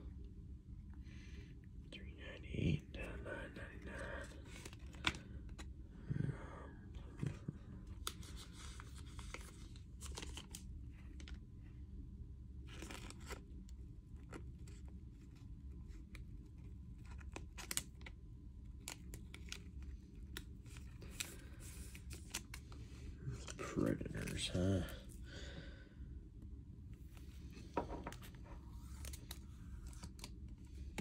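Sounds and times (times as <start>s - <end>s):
cards rustling and scraping: 4.0s - 5.7s, 7.1s - 11.4s, 12.7s - 13.5s, 18.7s - 25.2s, 26.9s - 31.0s.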